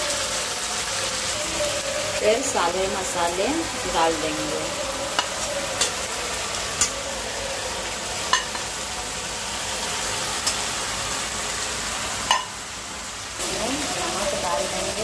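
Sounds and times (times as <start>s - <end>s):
onions sizzling in hot oil: 0.0s - 15.0s
metal spoon clinking on pan: 8.3s - 8.6s, 12.3s - 12.5s.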